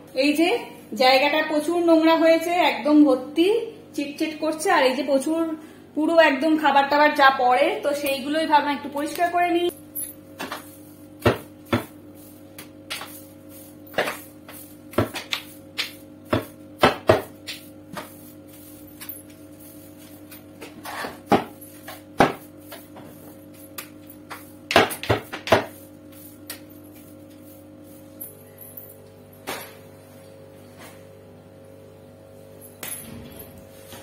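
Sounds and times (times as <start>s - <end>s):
broom knocking on tiled floor: 21.3s - 23.2s, 24.3s - 25.8s.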